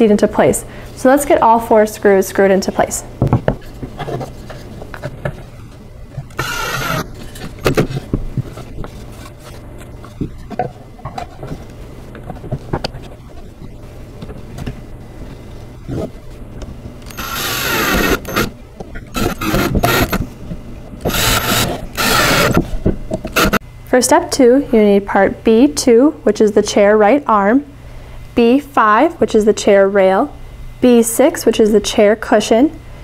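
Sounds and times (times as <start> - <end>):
cordless drill driving screws: 6.3 - 7.9, 17.1 - 18.5, 19.1 - 20.2, 21.0 - 22.6, 23.3 - 23.6.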